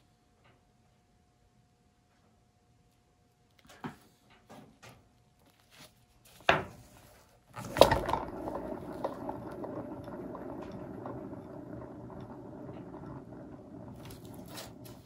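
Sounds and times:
spinning turntable rattling whir: 7.5s - 15.0s.

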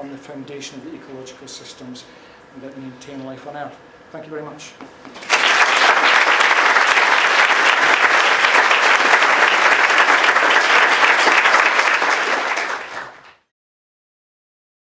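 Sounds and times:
audience applauding: 5.2s - 13.4s.

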